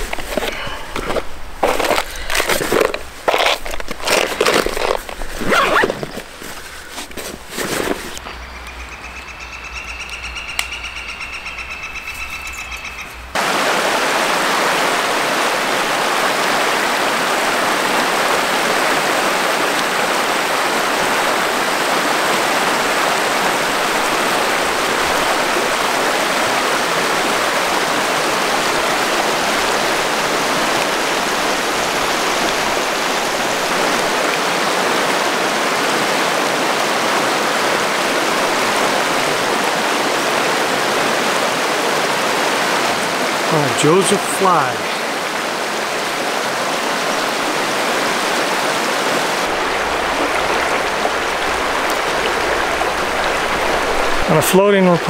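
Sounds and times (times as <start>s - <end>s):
river rushing over rocks: 13.3s - 55.0s.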